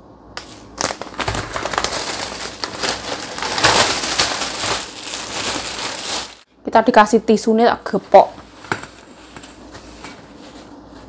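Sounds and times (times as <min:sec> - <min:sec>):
plastic bag rustling: 0:00.5 - 0:06.5.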